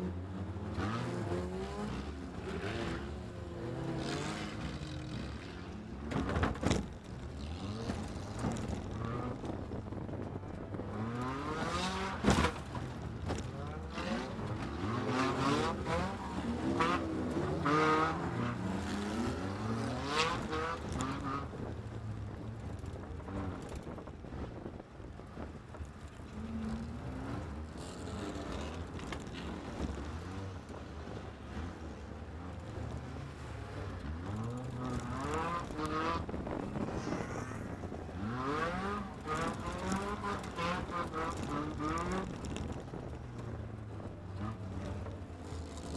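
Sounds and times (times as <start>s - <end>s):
race car engine revving: 10.8s - 21.6s.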